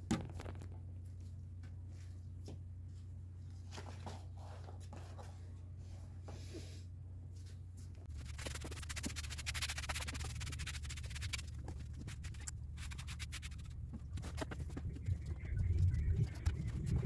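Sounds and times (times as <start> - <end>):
low steady hum: 0.0 - 17.0
scratchy rubbing and rustling: 8.1 - 17.0.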